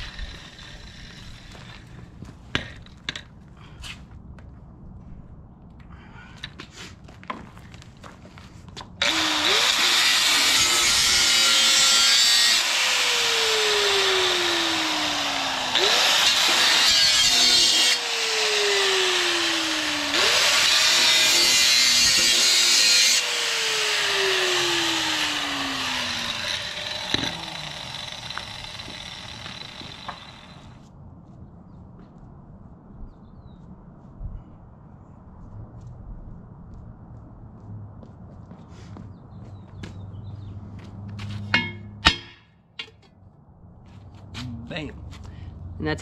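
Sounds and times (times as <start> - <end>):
angle grinder cutting metal: 0.0 - 1.8, 9.0 - 30.8
grinder motor winding down: 0.0 - 1.8, 9.0 - 21.7, 22.8 - 30.8.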